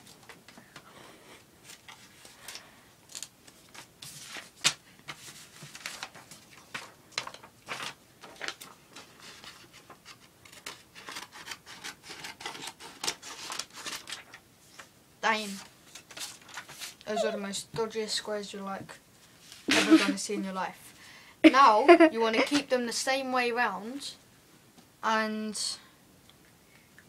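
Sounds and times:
paper rustling: 1.6 - 17.4.

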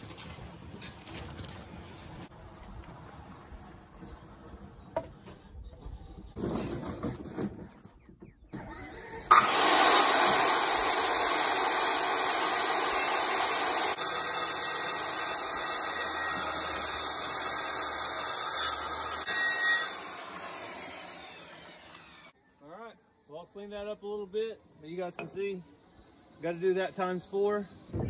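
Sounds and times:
circular saw cutting wood: 8.6 - 22.4.

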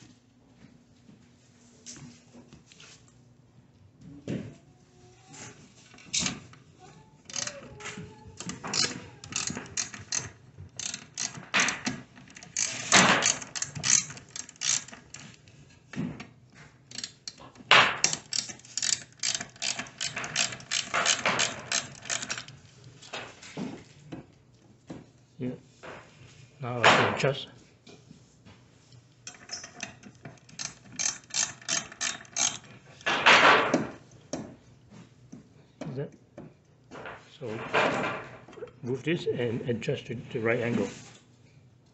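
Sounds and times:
ratchet wrench clicking: 7.3 - 7.6, 8.4 - 15.3, 16.9 - 17.4, 18.0 - 22.5, 29.3 - 32.7.

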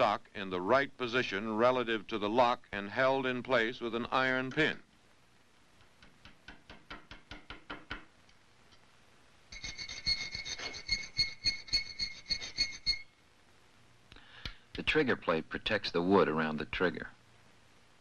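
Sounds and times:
chisel tapping into wood: 6.0 - 8.1
steady high ring: 9.5 - 13.2
metal-on-metal filing strokes: 9.6 - 13.1.

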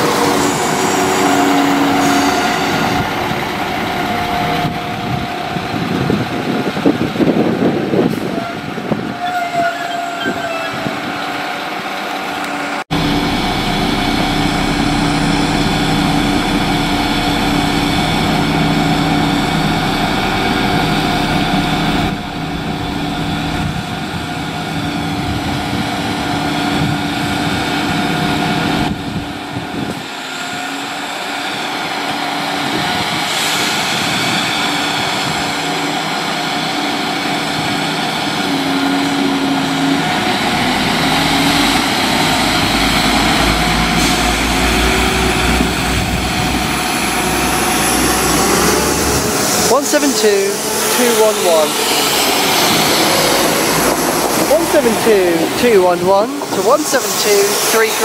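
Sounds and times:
train diesel engines running: 0.0 - 58.0.

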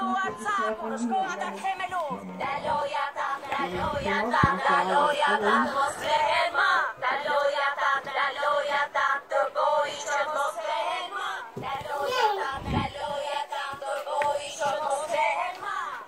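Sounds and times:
girl singing high-pitched: 11.8 - 12.8.

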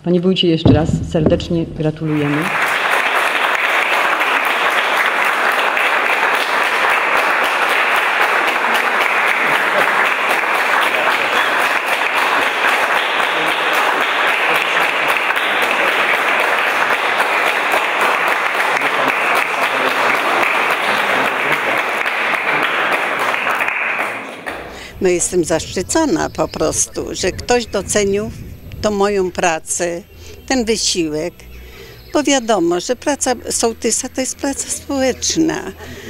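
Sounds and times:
audience applauding: 2.1 - 29.6.

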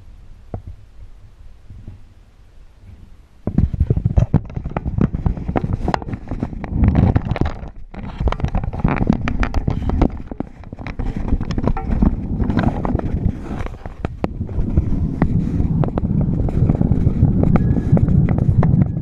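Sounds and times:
camera handling knocks and rubbing: 3.5 - 16.8.

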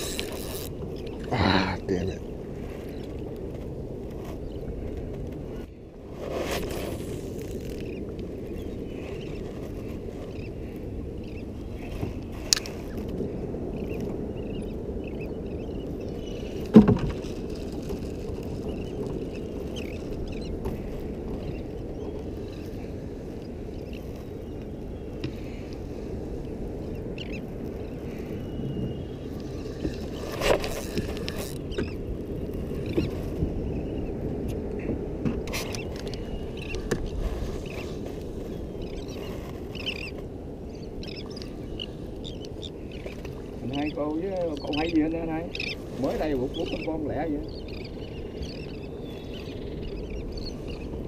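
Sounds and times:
wind: 0.0 - 51.0
sharp knocks on boat: 16.7 - 17.2
faint bird chirps: 38.8 - 50.9.

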